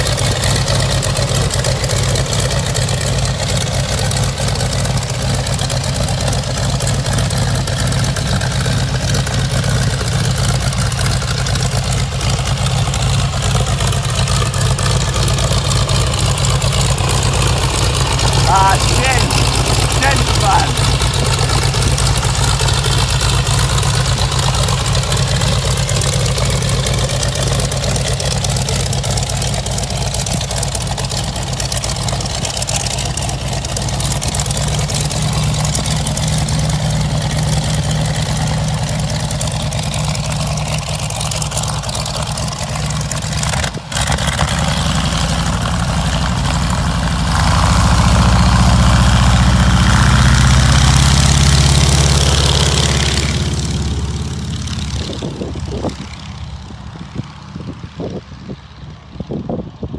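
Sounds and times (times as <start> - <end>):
biplane engine running: 0.0 - 59.9.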